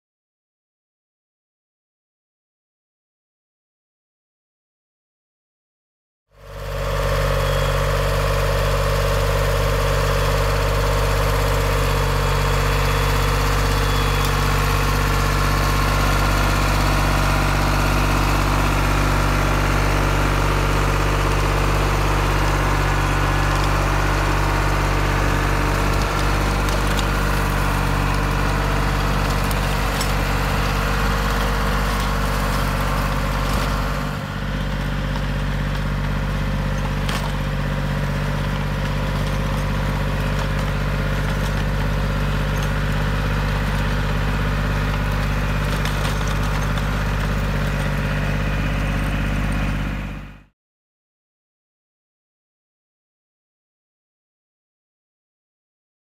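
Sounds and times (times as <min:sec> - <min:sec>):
tractor engine running: 0:06.4 - 0:50.5.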